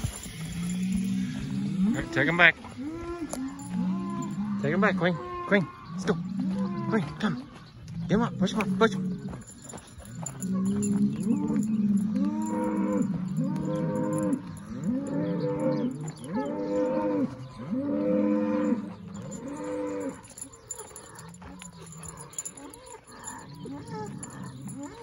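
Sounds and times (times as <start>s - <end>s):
cow mooing: 0.6s - 9.4s, 10.2s - 25.0s.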